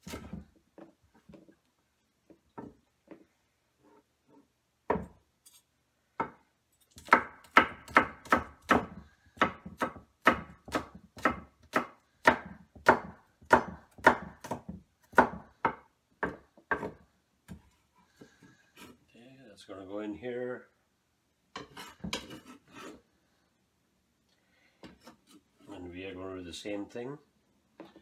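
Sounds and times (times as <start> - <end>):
knife chopping on wooden board: 0.0 - 0.5, 7.0 - 17.6.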